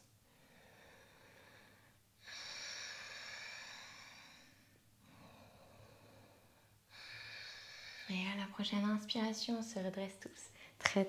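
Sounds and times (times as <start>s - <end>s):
person breathing deeply: 0.2s - 8.2s.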